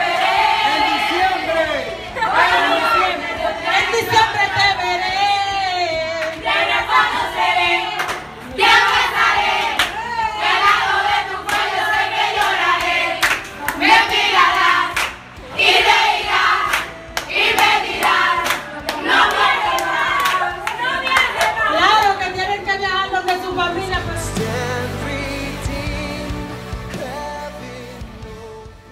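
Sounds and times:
group singing: 0.0 - 22.0, 23.4 - 28.9
woman singing lead: 2.2 - 13.0, 17.4 - 26.4
hands clapping: 6.2 - 7.2, 7.9 - 10.0, 11.4 - 22.2.

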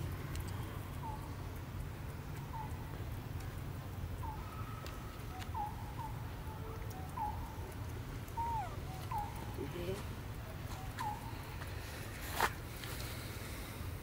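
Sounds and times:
high animal chirps: 8.4 - 9.5.

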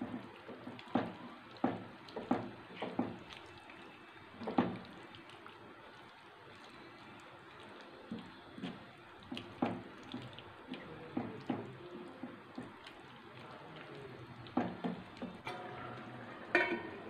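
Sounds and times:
wet squelching of thick gravy: 0.0 - 17.0
spatula knocking and scraping pan: 16.5 - 17.0.

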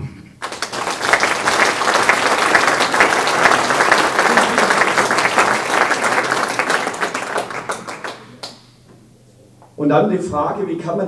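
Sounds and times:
audience applauding: 0.4 - 8.8.

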